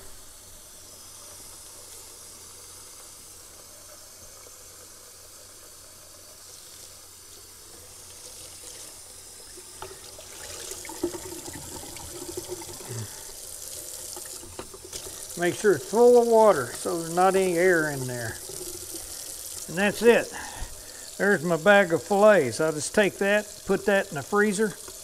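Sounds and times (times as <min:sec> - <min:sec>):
water filling plastic bag: 0:08.0 - 0:25.0.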